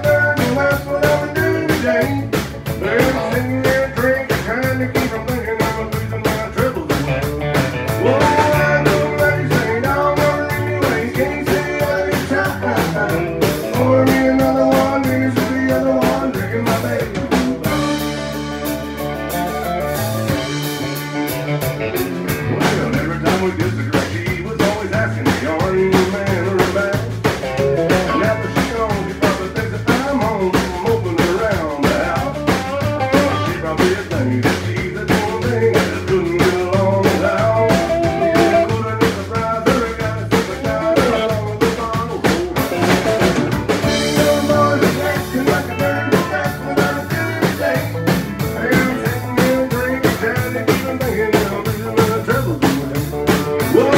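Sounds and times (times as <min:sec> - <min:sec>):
country band playing: 0:00.0 - 0:53.9.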